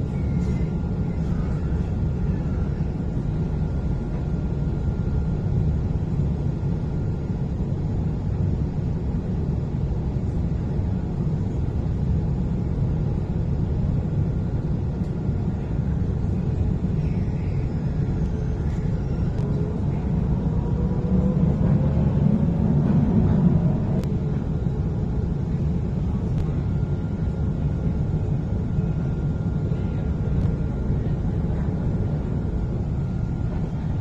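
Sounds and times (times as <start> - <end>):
faint rising whine: 16.5 - 34.0
tram rumbling on tracks: 17.9 - 28.9.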